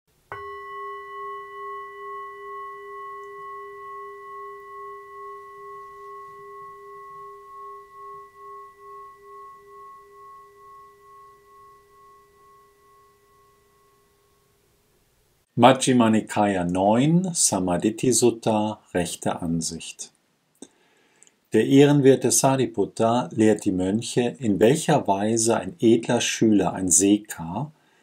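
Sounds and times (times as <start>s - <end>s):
singing bowl ringing: 0.2s - 15.0s.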